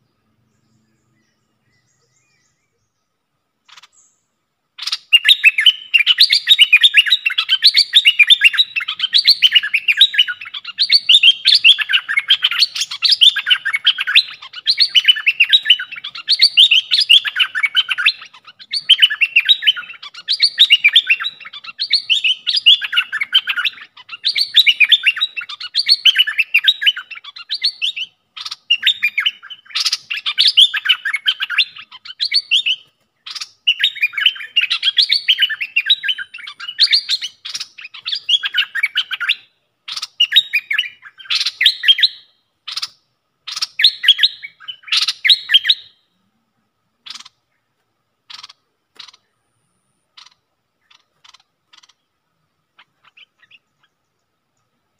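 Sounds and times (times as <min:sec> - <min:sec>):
bulbul chattering chirps: 0:03.6 - 0:54.9.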